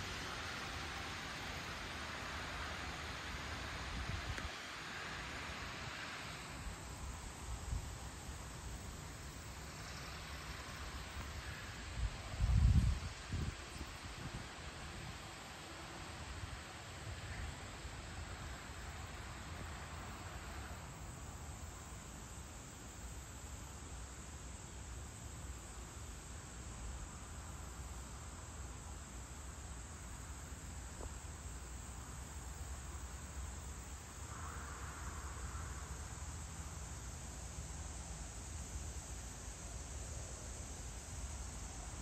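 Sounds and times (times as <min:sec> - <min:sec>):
insects droning: 0:00.0 - 0:42.0.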